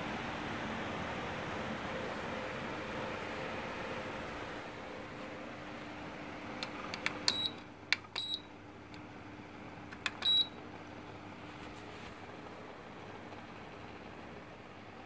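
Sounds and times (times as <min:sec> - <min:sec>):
fan humming with airflow hiss: 0:00.0 - 0:15.0
control buttons clicking: 0:06.6 - 0:09.0, 0:09.9 - 0:10.5.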